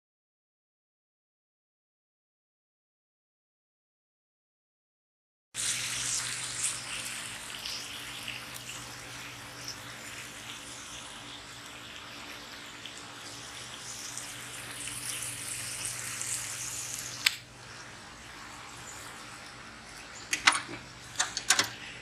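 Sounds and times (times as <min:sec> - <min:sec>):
patty sizzling in a skillet: 0:05.6 - 0:21.2.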